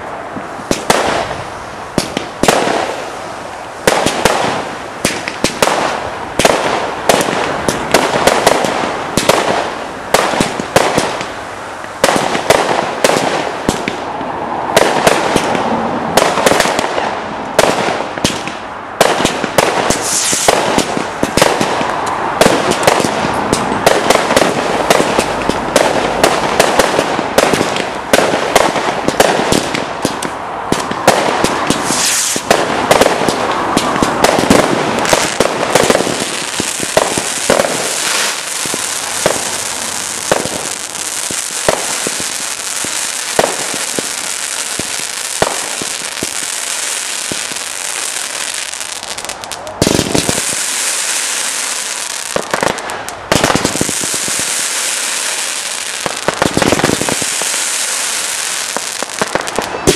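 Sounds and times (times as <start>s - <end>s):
fireworks bangs: 0.0s - 59.9s.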